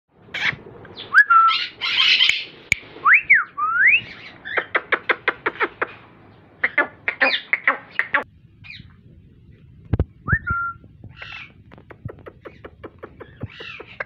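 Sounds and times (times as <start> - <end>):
parakeet calling: 0.3 - 2.7, 4.0 - 6.0, 6.6 - 8.9, 10.5 - 14.0.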